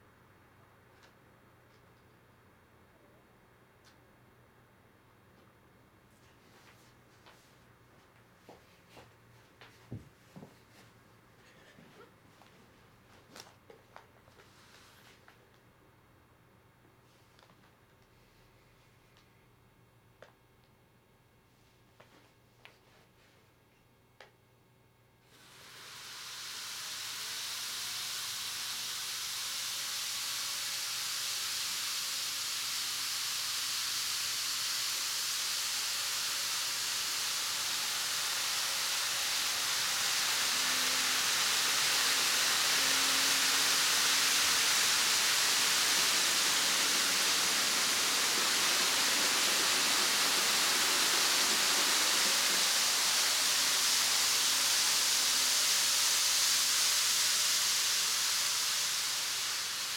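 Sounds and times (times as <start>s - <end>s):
model train wheels and motor hiss: 25.2s - 59.9s.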